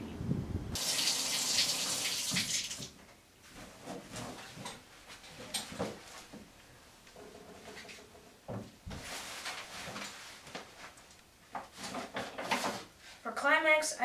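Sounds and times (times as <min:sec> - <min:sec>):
shower water running: 0:00.8 - 0:03.0
light knocks and rustles: 0:03.0 - 0:06.5, 0:07.1 - 0:12.9.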